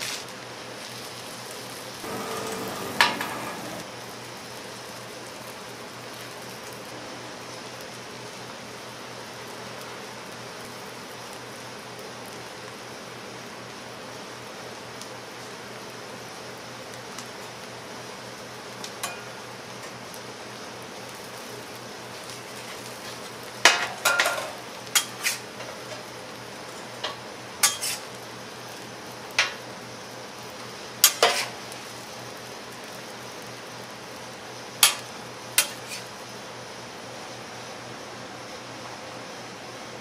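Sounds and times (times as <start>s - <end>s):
steady background hiss: 0.0s - 40.0s
metal utensils clattering on cookware: 2.1s - 3.8s, 23.7s - 26.1s, 27.0s - 28.0s, 31.0s - 31.6s.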